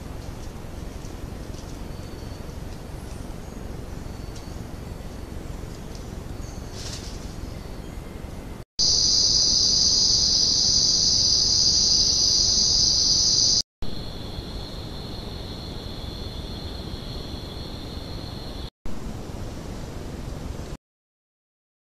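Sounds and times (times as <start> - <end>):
lower insect trill: 0.0 - 18.7
steady hiss: 8.8 - 18.4
insects shrilling: 8.8 - 18.7.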